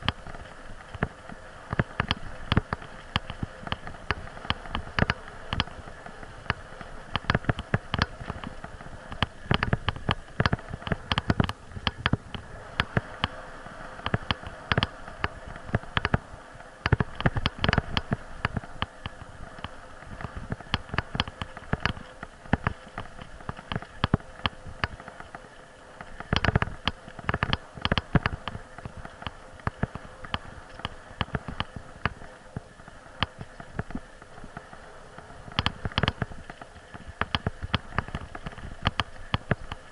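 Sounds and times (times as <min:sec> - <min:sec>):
bicycle tyre rolling noise: 0:00.0 - 0:39.9
camera rattling and knocking: 0:06.4 - 0:13.0, 0:26.2 - 0:32.2.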